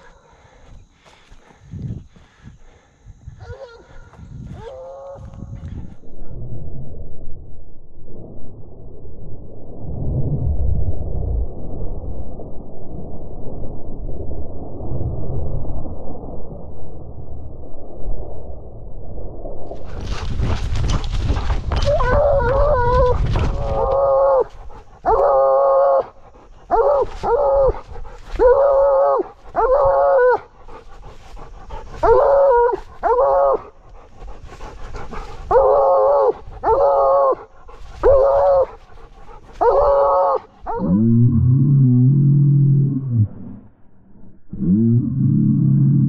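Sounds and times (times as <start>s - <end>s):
hound baying: 20.0s - 40.9s.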